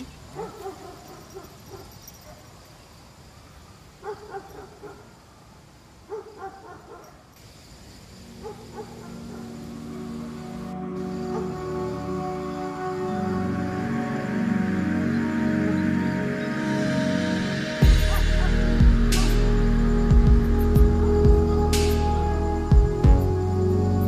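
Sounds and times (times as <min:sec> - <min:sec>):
music: 0:08.8 - 0:24.0.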